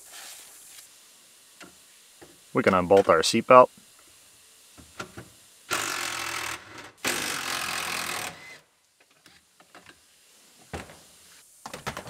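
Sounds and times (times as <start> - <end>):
impact wrench running: 5.7 - 8.6.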